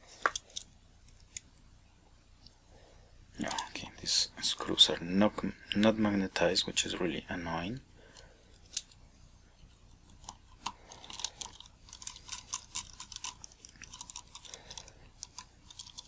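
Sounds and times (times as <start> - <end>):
screwdriver metal clicks and scrapes: 10.0 - 16.0.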